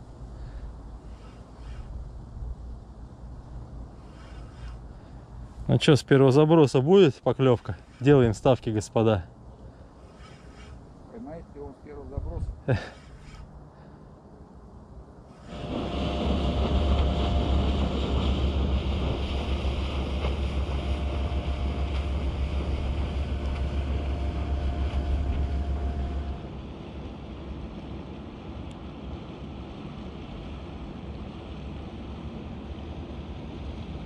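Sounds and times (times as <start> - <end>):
barge engine drone: 0.0 - 6.0, 7.6 - 34.0
water noise: 0.0 - 34.0
wind: 0.0 - 34.0
faint held tone: 23.3 - 26.4.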